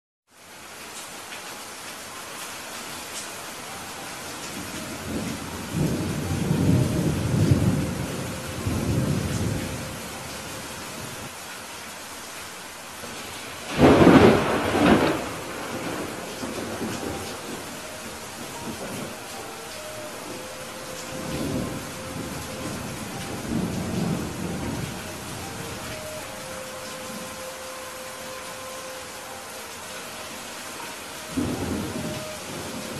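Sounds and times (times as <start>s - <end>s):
steady rain hiss: 0.3s - 32.9s
low rumble of thunder: 5.0s - 11.2s, 13.7s - 19.3s, 20.0s - 26.0s, 31.3s - 32.9s.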